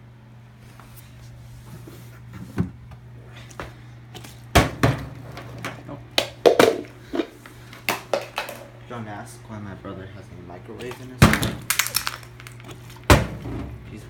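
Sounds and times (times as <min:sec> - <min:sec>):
low steady hum: 0:00.0 - 0:14.0
plastic bottle knocking and clattering: 0:06.2 - 0:07.3, 0:07.9 - 0:08.7, 0:11.2 - 0:13.3.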